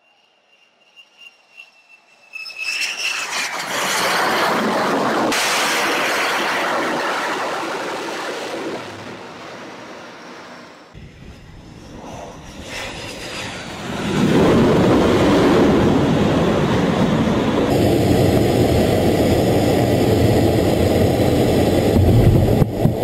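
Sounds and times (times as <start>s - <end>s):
landing jet noise: 0.0s - 23.0s
fighter jet engine rushing: 0.3s - 23.0s.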